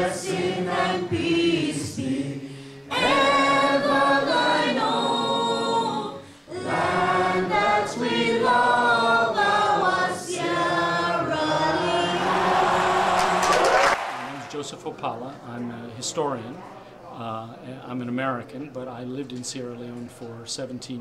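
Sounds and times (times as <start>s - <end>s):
crowd singing slow song: 0.0s - 14.7s.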